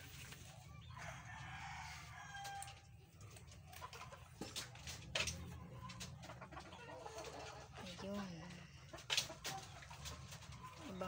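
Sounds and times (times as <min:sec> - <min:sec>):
faint clucking bird calls: 0:00.0 - 0:11.0.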